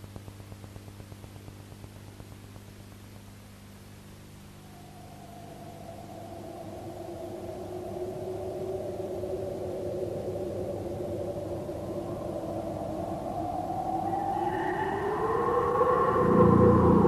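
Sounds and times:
sustained drone of held tones: 0.0s - 17.0s.

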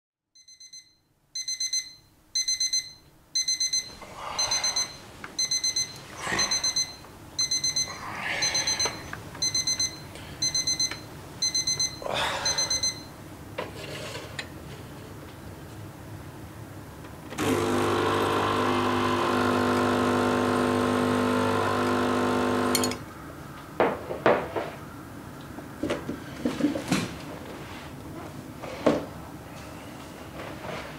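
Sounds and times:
alarm clock beeping: 0.4s - 13.1s
espresso machine pump humming: 17.4s - 22.9s.

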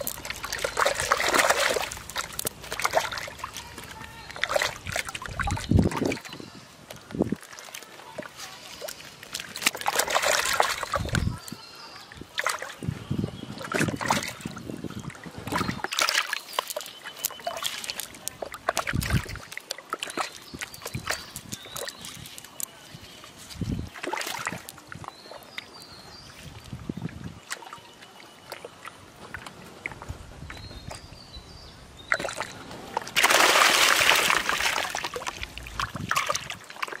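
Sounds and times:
wet slaps and net rustles: 0.0s - 6.1s, 8.8s - 11.3s, 33.1s - 36.6s
fish splashing in water: 0.0s - 31.1s, 32.0s - 37.0s.

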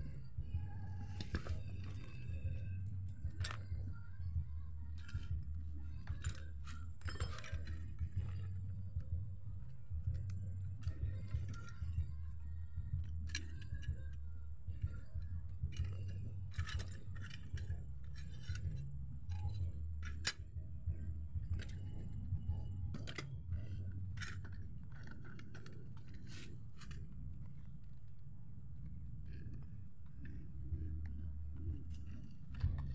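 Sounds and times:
steady low hum: 0.0s - 32.9s
metal parts clinking and scraping: 0.9s - 3.7s, 4.9s - 9.0s, 13.2s - 14.2s, 15.7s - 20.6s, 21.6s - 27.1s.

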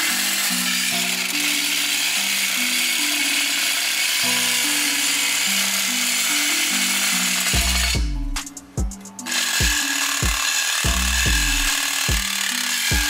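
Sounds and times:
reciprocating saw cutting metal: 0.0s - 13.0s
background music with bass line: 7.5s - 12.3s.

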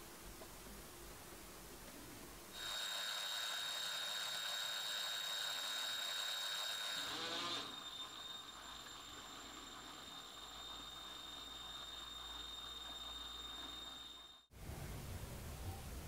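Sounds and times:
cordless drill whining: 2.6s - 14.4s.

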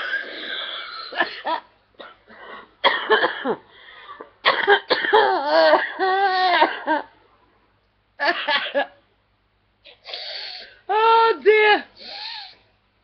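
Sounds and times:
woman coughing: 0.0s - 3.7s, 4.4s - 7.1s, 8.2s - 9.0s.

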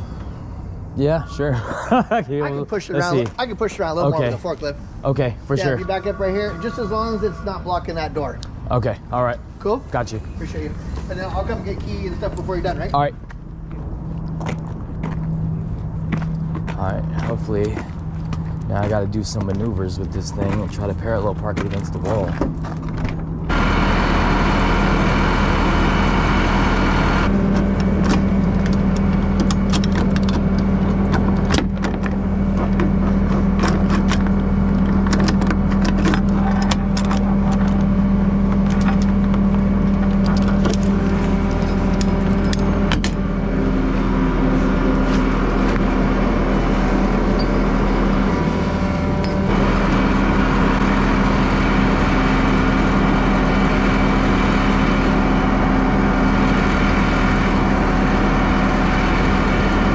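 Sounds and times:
truck engine idling: 0.0s - 59.9s.

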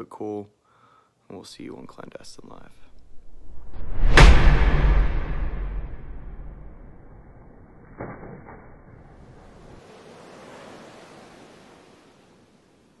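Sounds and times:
deep rumble: 2.3s - 7.6s
ocean surf washing: 9.1s - 13.0s.

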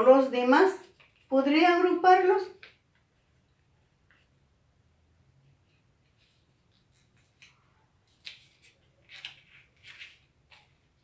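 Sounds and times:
paper rustling and crinkling: 0.8s - 1.3s, 6.0s - 11.0s.

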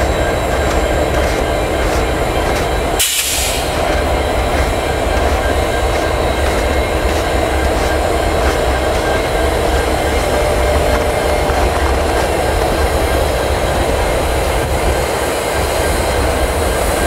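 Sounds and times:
diesel engine rumble: 0.0s - 17.0s
train wheels on rails: 0.0s - 17.0s.

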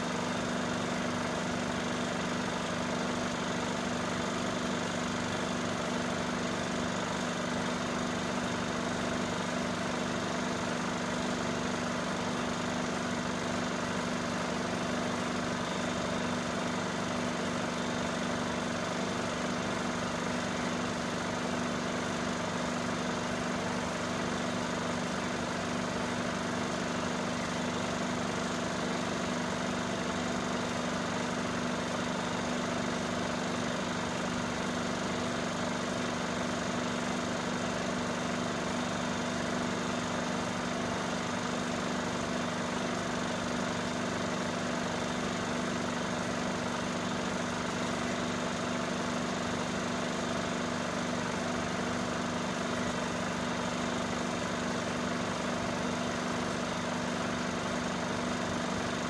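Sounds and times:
film projector whirring: 0.0s - 59.0s.

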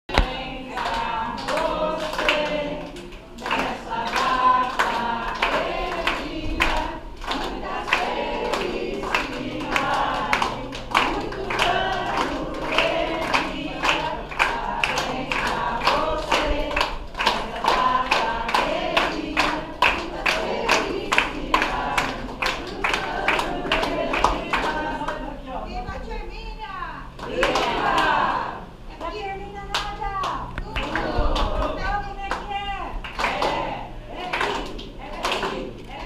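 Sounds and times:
group singing: 0.0s - 25.7s, 27.1s - 29.0s, 30.3s - 36.0s
people clapping: 0.1s - 25.4s, 27.1s - 36.0s.

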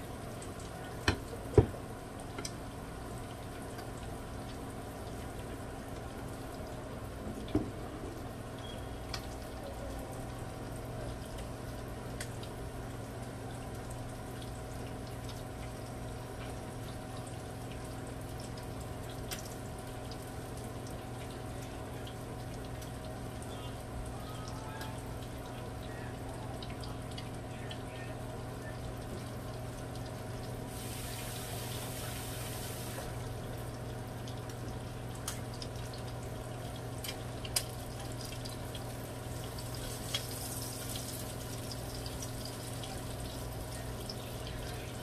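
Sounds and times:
fish sizzling in hot oil: 29.9s - 45.0s.

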